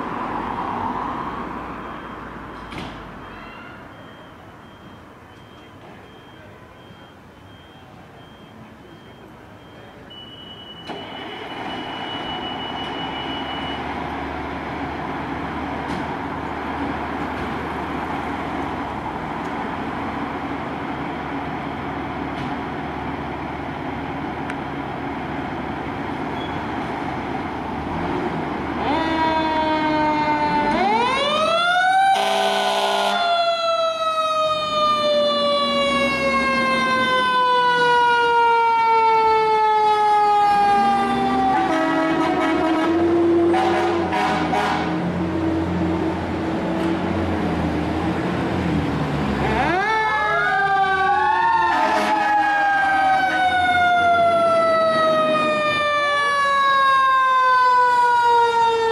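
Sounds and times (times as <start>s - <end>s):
diesel engines idling: 3.9s - 33.1s, 33.7s - 58.9s
mechanical fire truck siren wailing: 28.8s - 44.7s, 49.4s - 58.9s
air horn blast: 32.2s - 33.2s, 41.5s - 45.1s, 51.7s - 52.4s.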